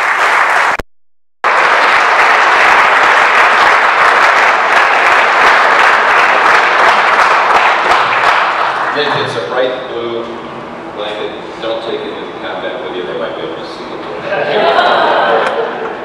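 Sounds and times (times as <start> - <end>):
audience applauding: 0.0 - 0.8, 1.4 - 9.6.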